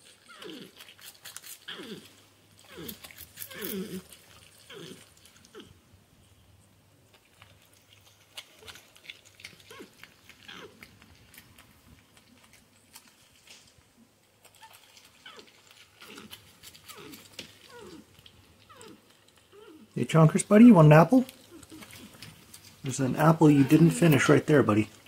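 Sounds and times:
porcupine grunts and whines: 0:00.0 - 0:05.8, 0:09.4 - 0:11.8, 0:14.5 - 0:20.2, 0:20.9 - 0:25.0
animals chewing and crunching: 0:00.0 - 0:25.0.

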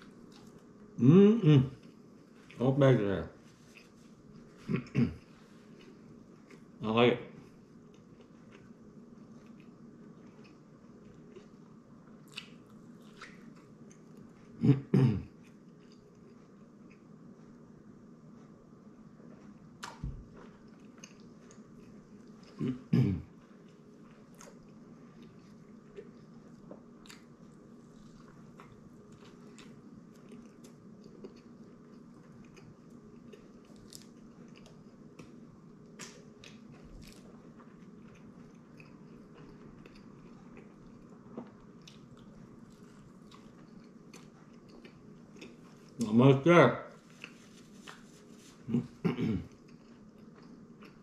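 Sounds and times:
man chewing: 0:00.0 - 0:00.7, 0:07.8 - 0:14.6, 0:15.4 - 0:17.6, 0:19.2 - 0:46.1, 0:47.0 - 0:51.0.

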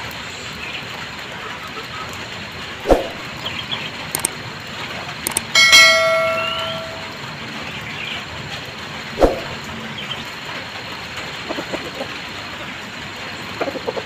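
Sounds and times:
loud metallic clang: 0:05.3 - 0:07.2.

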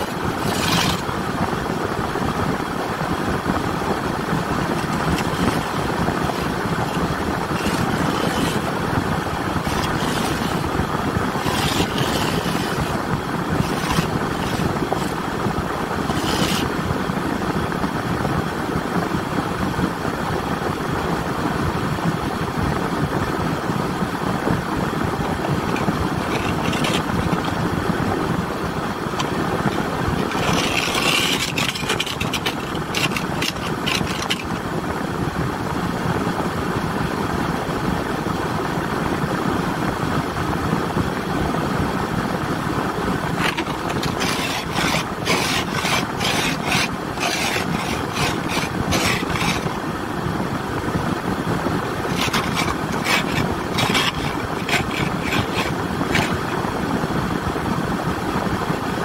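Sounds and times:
quick scraping strokes: 0:00.0 - 0:01.3, 0:03.9 - 0:16.9, 0:25.1 - 0:28.0, 0:28.9 - 0:34.6, 0:43.3 - 0:49.8, 0:51.9 - 0:56.7.

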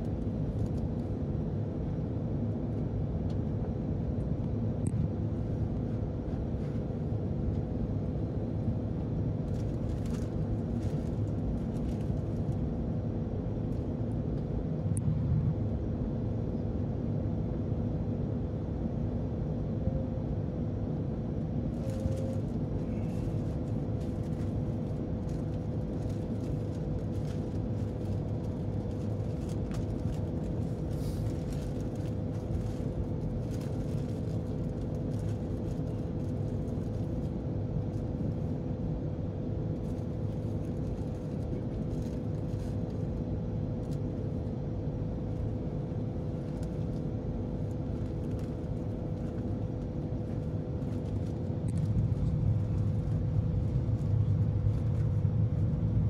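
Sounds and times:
airliner cabin rumble: 0:00.0 - 0:56.0
constant humming tone: 0:00.0 - 0:56.0.

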